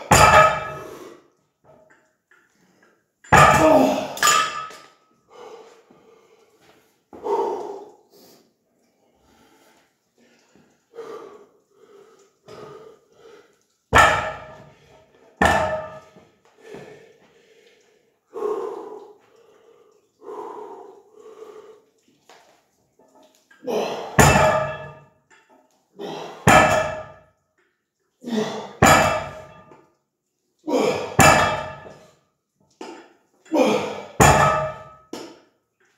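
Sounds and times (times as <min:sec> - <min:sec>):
weight plates clanking on floor: 0:00.0 - 0:00.9, 0:03.3 - 0:04.9, 0:15.4 - 0:16.2, 0:24.1 - 0:25.4, 0:31.2 - 0:32.0, 0:34.2 - 0:35.0.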